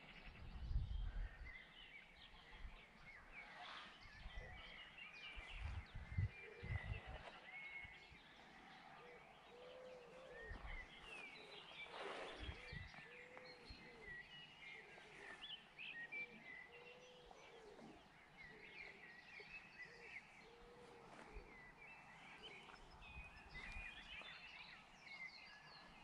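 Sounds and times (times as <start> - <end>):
wind rumble on microphone: 0.0 - 8.6, 10.3 - 14.2, 20.8 - 26.0
birds chirping and trilling: 0.0 - 26.0.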